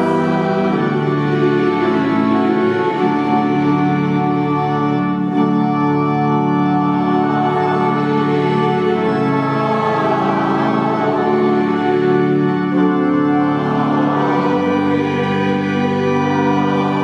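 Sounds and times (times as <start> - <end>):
church organ playing chords: 0.0 - 17.0.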